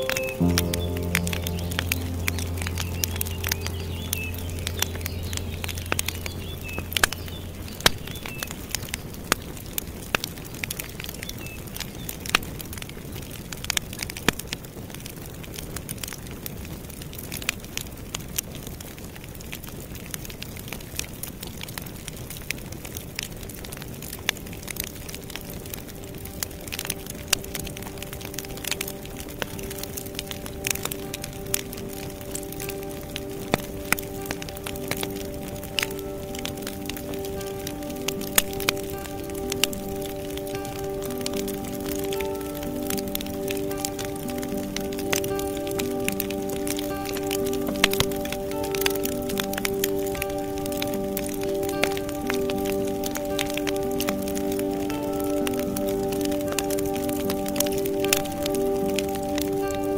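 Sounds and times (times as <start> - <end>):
low steady drone: 0.0 - 9.5, 24.7 - 59.9
wood fire crackling: 0.0 - 59.9.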